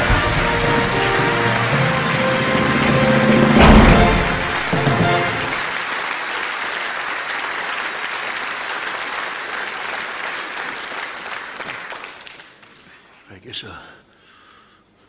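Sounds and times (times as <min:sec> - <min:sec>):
short music sting: 0:00.0 - 0:05.8
audience applauding: 0:00.0 - 0:13.0.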